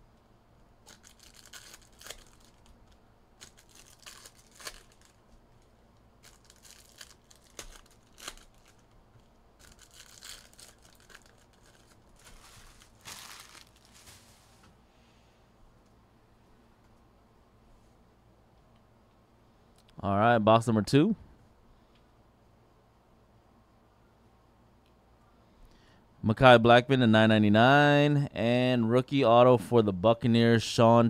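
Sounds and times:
plastic wrapping tearing and crinkling: 0.8 - 5.3, 6.2 - 14.4.

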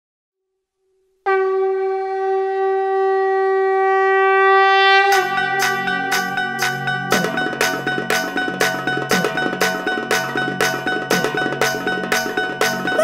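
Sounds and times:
conch shell blown: 1.3 - 7.1
music with percussion strikes: 5.1 - 13.0.

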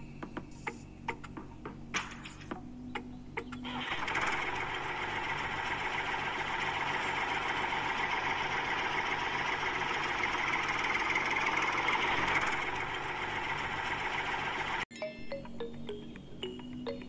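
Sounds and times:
small electric motor running: 3.7 - 14.8.

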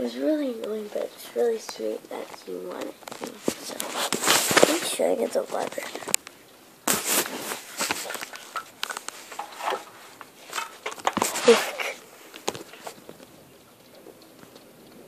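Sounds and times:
footsteps: 0.6 - 6.2, 6.9 - 13.3.

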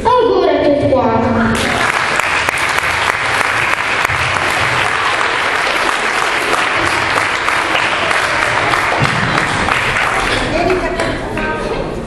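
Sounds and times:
audience applause: 1.6 - 11.2.

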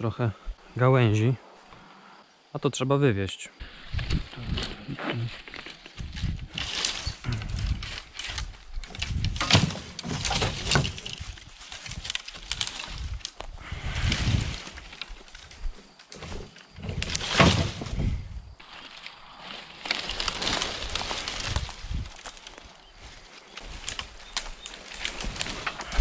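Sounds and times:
twigs and leaves rustling: 3.6 - 26.0.

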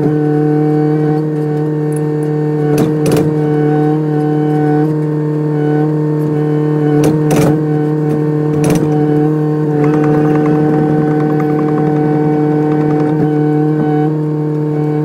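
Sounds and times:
excavator diesel engine running: 8.0 - 15.0
short knocks: 9.7 - 13.7.

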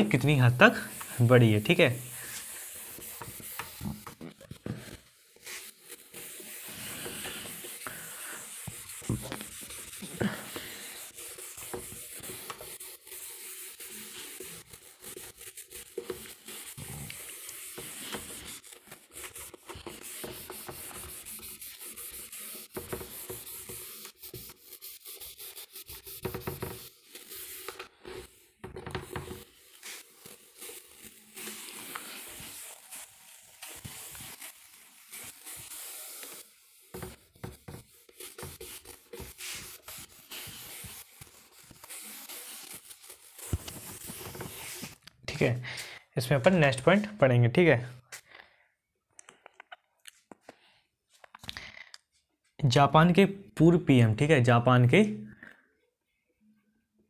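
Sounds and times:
eraser wiping whiteboard: 0.0 - 45.0.

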